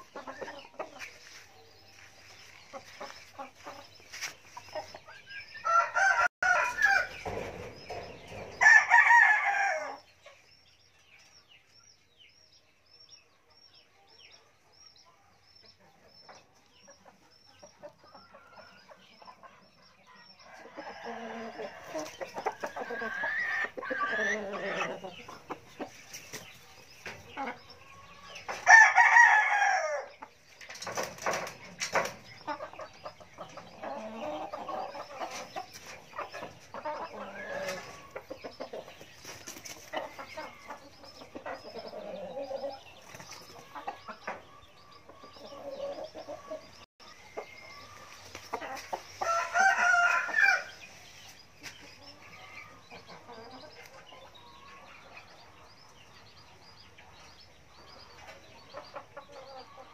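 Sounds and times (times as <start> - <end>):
chickens clucking: 0.0 - 59.9
rooster crowing: 5.6 - 7.1, 49.2 - 50.7.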